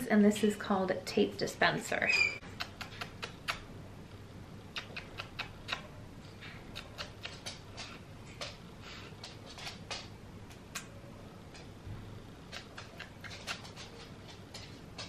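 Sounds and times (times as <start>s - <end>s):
kissing smacks: 2.4s - 3.7s, 4.7s - 6.0s, 6.7s - 8.0s, 10.5s - 11.0s, 12.5s - 13.7s.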